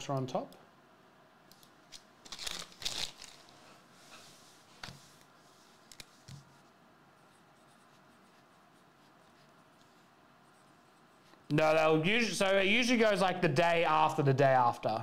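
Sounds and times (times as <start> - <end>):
paper rustle: 2.2 - 6.6
marker pen scratching paper: 4.0 - 11.4.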